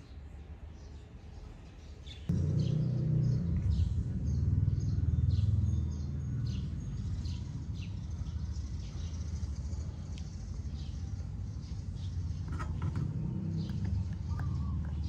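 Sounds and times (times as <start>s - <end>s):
small birds chirping: 0.0s - 15.0s
loud low hum: 2.3s - 9.0s.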